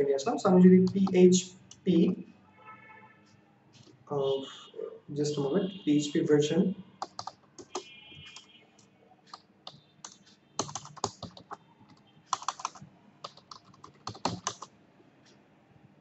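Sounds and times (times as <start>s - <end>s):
computer keyboard key clicks: 0.8s - 1.2s, 7.0s - 8.5s, 9.3s - 14.7s.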